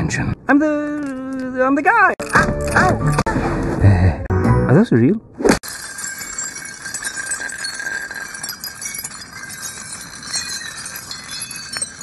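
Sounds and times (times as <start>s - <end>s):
glass fragments clinking: 5.6s - 12.0s
glass scraping across asphalt: 5.6s - 12.0s.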